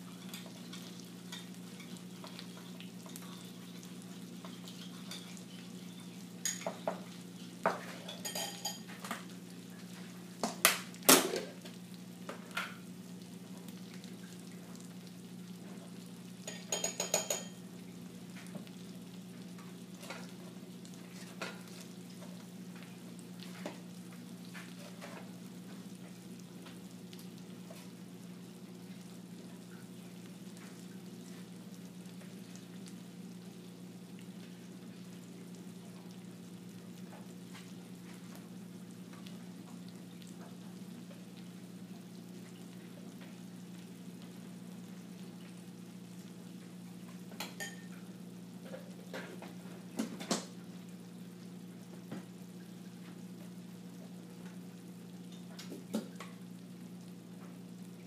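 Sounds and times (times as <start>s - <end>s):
food sizzling in a pan: 0.0s - 58.0s
metal utensils clinking on pans: 6.4s - 7.0s, 7.8s - 9.0s, 16.5s - 17.6s.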